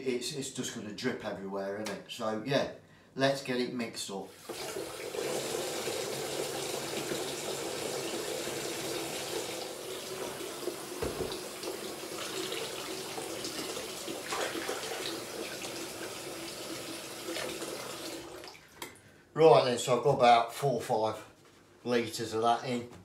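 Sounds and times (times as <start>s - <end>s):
tap water running into bucket: 4.3s - 18.9s.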